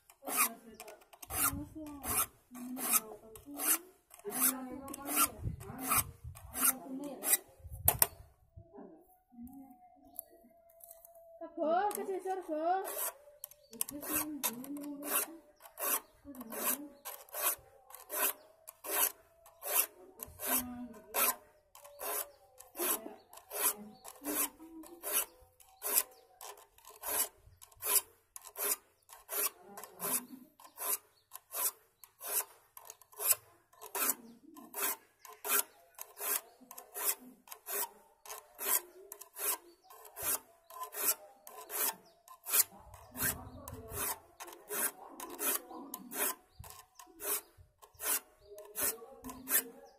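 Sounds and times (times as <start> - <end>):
file rasping on saw teeth: 0.1 - 8.2, 12.8 - 49.9.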